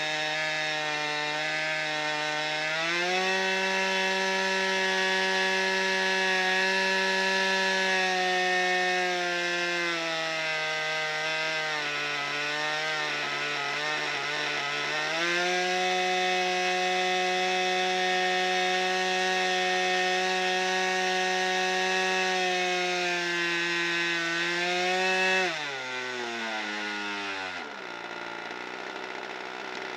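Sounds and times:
model plane engine running: 25.2 - 29.9.

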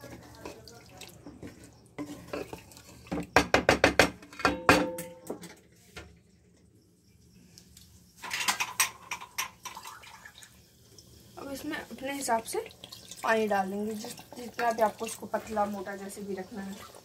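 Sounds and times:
spoon scraping metal pot: 1.3 - 3.4.

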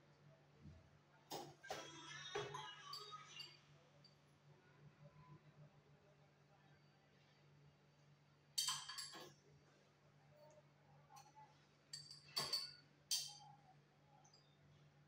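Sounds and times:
faint low hum: 0.0 - 15.0
glassware clinking: 8.6 - 9.3, 11.9 - 13.4.

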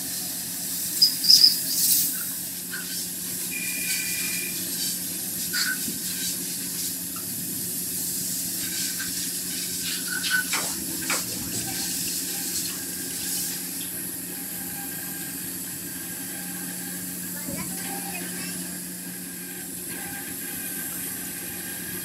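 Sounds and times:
lathe hiss: 0.0 - 19.4
short squeaks: 1.0 - 2.0, 9.8 - 10.7.

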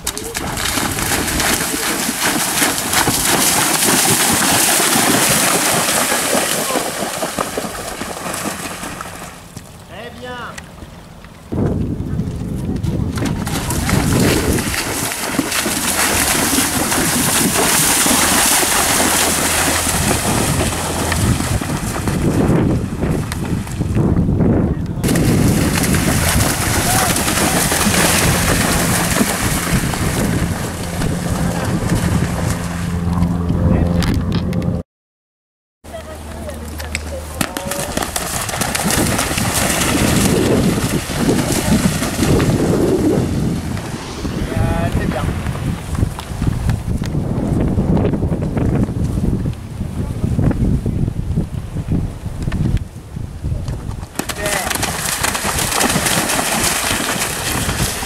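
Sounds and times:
wind on microphone: 0.0 - 8.9, 11.5 - 34.8, 37.8 - 58.0
horse hooves splashing in water: 0.0 - 9.9, 12.3 - 24.0, 25.0 - 33.3, 35.9 - 43.0, 53.6 - 58.0.

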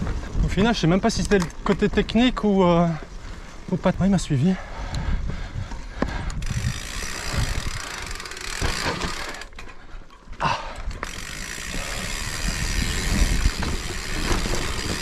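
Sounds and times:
bike knocking and rattling: 0.0 - 4.5, 5.2 - 15.0
bike tyres on dirt trail: 0.0 - 15.0
freewheel clicking: 6.3 - 9.7, 10.8 - 15.0.

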